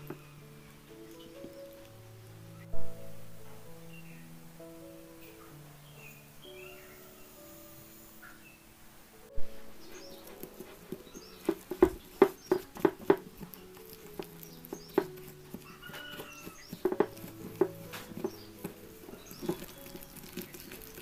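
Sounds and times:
whisk scraping glass bowl: 0:09.9 - 0:21.0.

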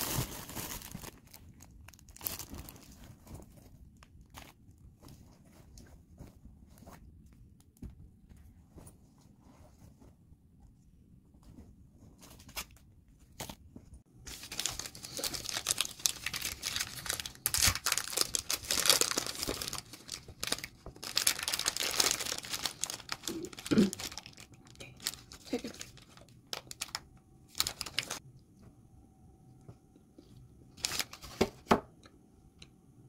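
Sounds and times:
wrapping crinkling and rustling: 0:00.0 - 0:07.8, 0:14.2 - 0:28.2, 0:30.7 - 0:31.7.

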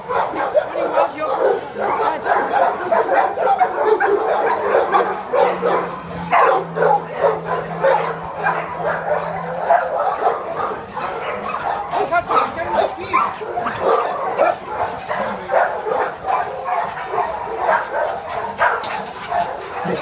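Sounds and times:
many dogs barking: 0:00.0 - 0:20.0.

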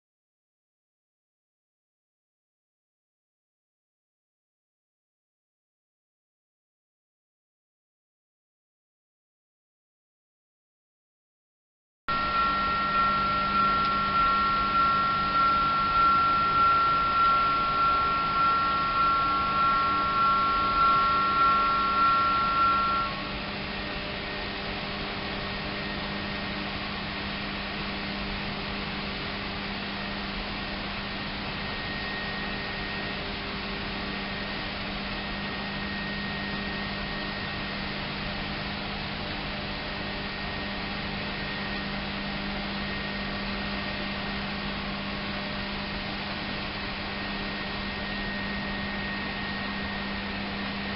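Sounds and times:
level-crossing warning bell: 0:12.1 - 0:23.1
low machinery hum with hiss: 0:12.1 - 0:50.9.

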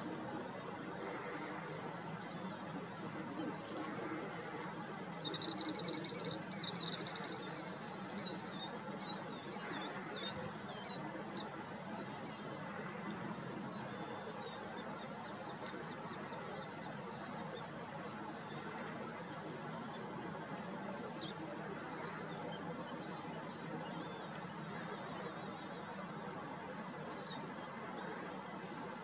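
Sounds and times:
low background noise: 0:00.0 - 0:29.0
small bird singing: 0:03.2 - 0:12.6.

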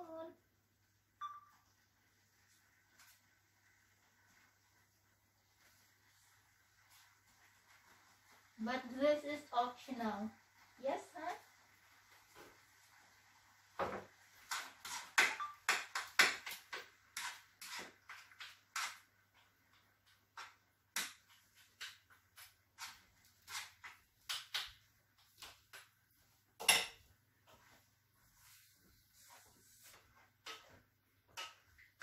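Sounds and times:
spoon scraping a skillet: 0:14.0 - 0:24.0, 0:28.4 - 0:31.9.

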